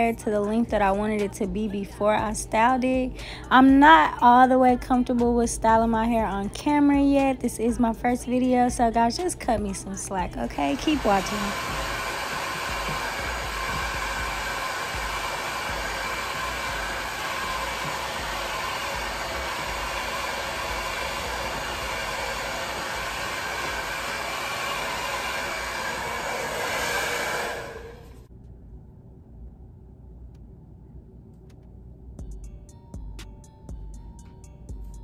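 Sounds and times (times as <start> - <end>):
hair dryer blowing: 10.2 - 28.2.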